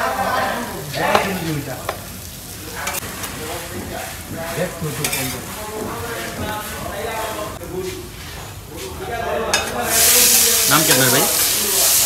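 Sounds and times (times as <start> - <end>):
hot oil sizzling: 0.0 - 12.0
metal spatula clinking: 5.0 - 5.4.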